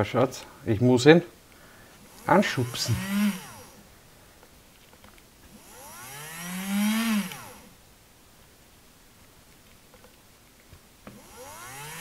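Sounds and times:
small motor whining: 2.0s - 3.8s, 5.5s - 7.8s, 11.1s - 12.0s.

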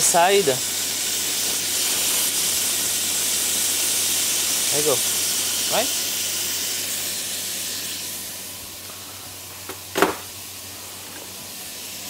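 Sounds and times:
meat searing in hot oil: 0.0s - 12.0s.

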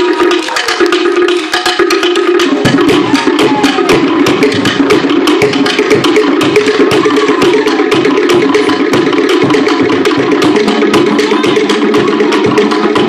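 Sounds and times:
deeper drum: 0.0s - 13.0s
hand drums: 0.0s - 13.0s
sharp wooden strikes: 0.4s - 13.0s.

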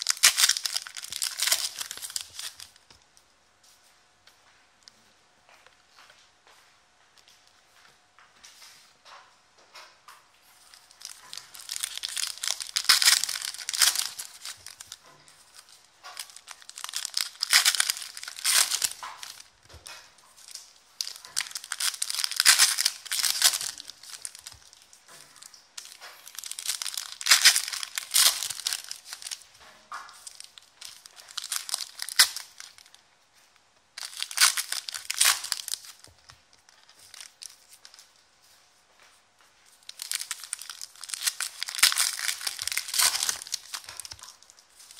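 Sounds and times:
foil wrappers tearing and crinkling: 0.0s - 2.9s, 10.6s - 33.0s, 34.0s - 38.2s, 39.8s - 44.9s.

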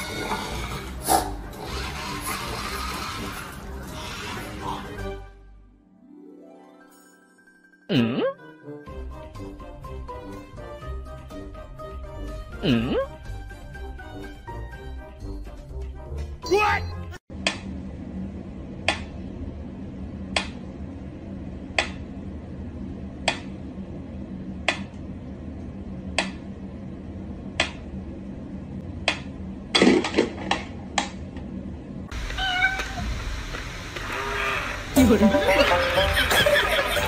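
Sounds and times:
cat crying: 32.3s - 33.1s.

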